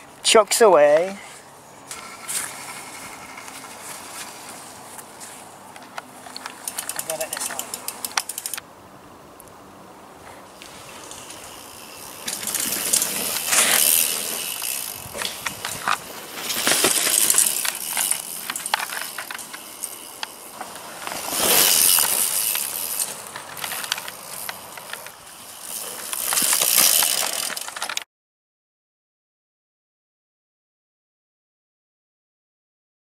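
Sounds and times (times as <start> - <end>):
bike tyres rolling and skidding on dirt: 0.0 - 8.7, 10.2 - 28.0
bike clicks and knocks: 5.7 - 8.7, 10.6 - 28.0.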